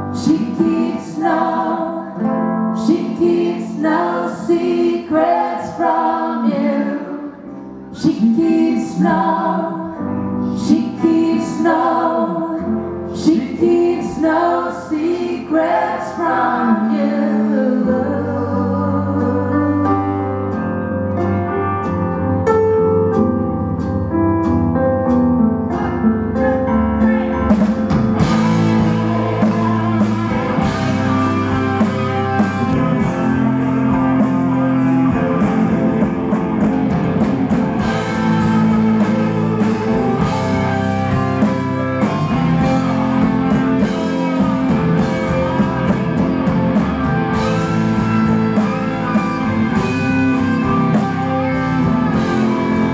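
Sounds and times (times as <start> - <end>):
electric guitar: 0.0 - 52.9
live rock band playing: 7.6 - 52.9
drums and cymbals: 27.5 - 52.9.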